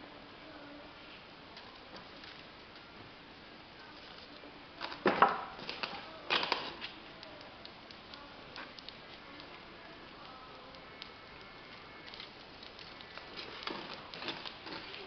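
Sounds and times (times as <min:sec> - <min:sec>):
low steady hiss: 0:00.0 - 0:15.0
sharp crackling clicks: 0:04.3 - 0:15.0.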